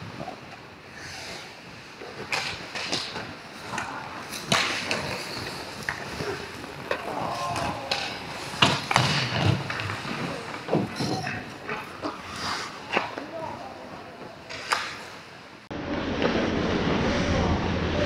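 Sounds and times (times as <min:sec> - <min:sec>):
skate blades scraping on ice: 0:00.9 - 0:15.3
hockey sticks and puck clacking: 0:01.0 - 0:15.5.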